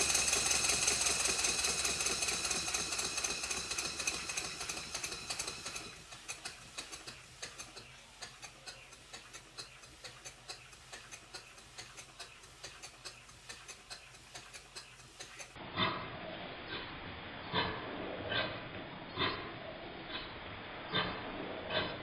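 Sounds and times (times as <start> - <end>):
steam engine exhaust hiss: 0.0 - 15.6
steam engine ticking: 0.0 - 15.6.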